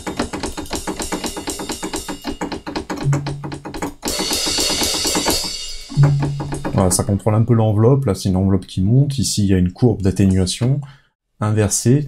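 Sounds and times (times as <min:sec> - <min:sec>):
fast run of drum hits: 0:00.0 - 0:07.1
cymbal ringing: 0:04.3 - 0:07.0.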